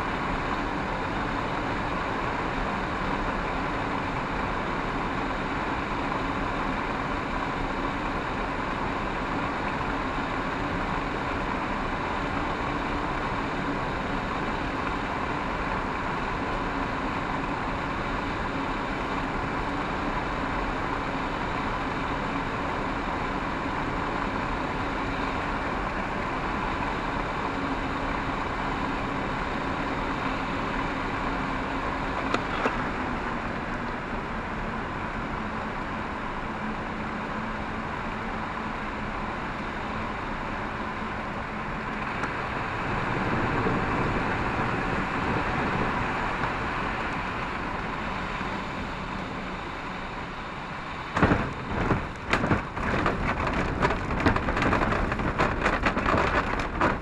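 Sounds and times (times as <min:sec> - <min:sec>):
airflow rushing past cockpit: 0:00.0 - 0:57.0
wheels bumping on touchdown: 0:51.1 - 0:57.0.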